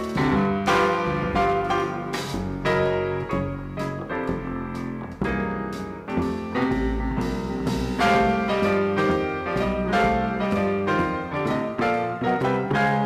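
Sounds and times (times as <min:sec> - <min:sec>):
jazz piano: 0:00.0 - 0:13.0
upright double bass: 0:00.0 - 0:13.0
drums with cymbal strokes: 0:05.8 - 0:09.2.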